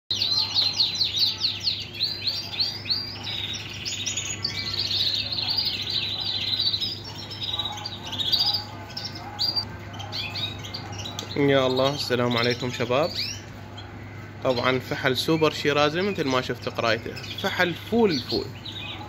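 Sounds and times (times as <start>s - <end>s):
canary singing: 0.1s - 19.0s.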